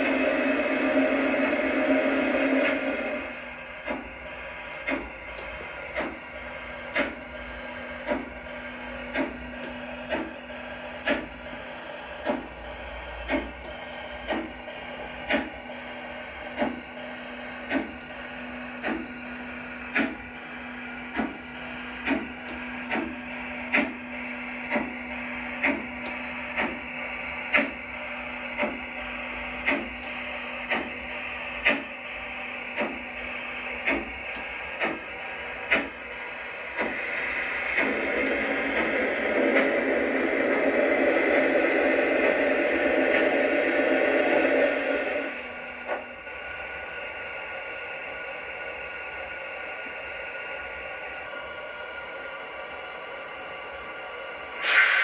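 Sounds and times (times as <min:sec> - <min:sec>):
model train motor hum: 0:18.8 - 0:48.4.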